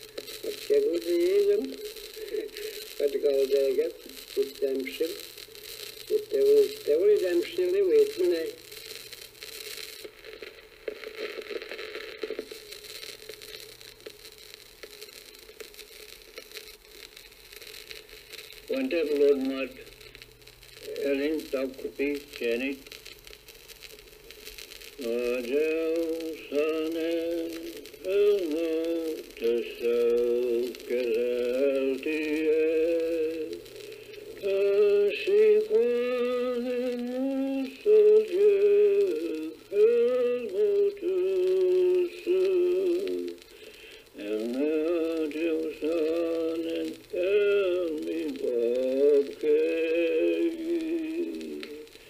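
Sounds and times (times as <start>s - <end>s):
man singing solo: 25.0s - 33.6s, 34.4s - 43.4s, 44.2s - 51.9s.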